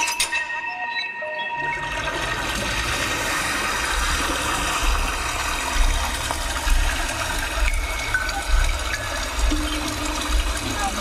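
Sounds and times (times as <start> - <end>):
rushing water: 2.2 - 11.0.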